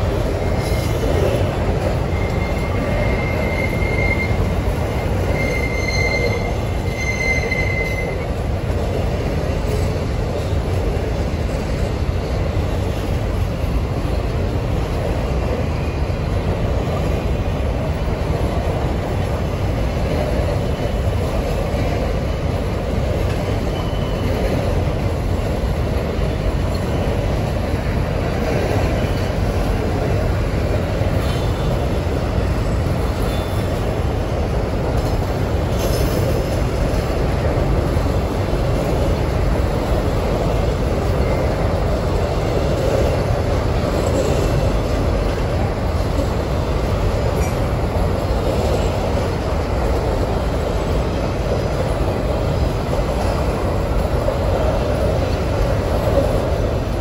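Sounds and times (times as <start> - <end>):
train wheels rumbling on rail: 0.0 - 57.0
high wheel squeal: 1.9 - 8.3.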